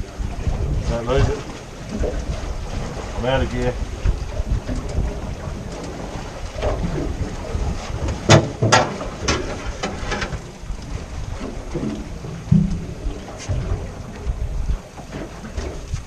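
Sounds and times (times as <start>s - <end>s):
water splashing around boat: 0.0s - 16.0s
wind buffeting microphone: 0.0s - 16.0s
sharp knocks: 8.3s - 10.3s, 12.5s - 13.6s.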